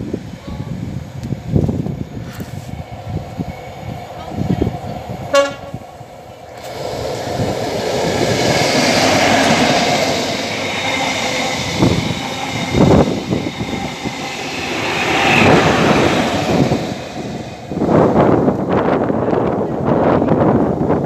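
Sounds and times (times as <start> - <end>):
train wheels rolling on rail: 0.0 - 21.0
diesel power car passing: 6.4 - 18.7.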